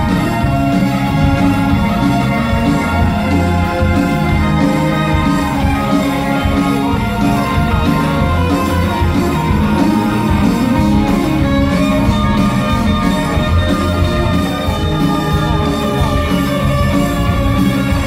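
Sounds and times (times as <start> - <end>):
drums: 0.0 - 18.0
electric guitar: 0.0 - 18.0
keyboards: 0.0 - 18.0.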